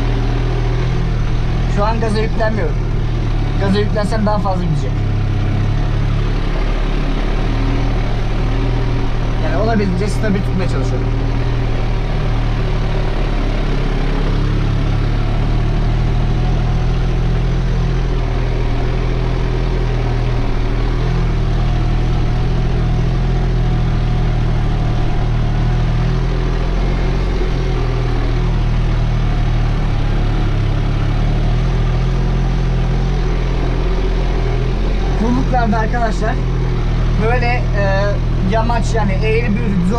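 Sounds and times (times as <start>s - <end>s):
tractor diesel engine under load: 0.0s - 39.9s.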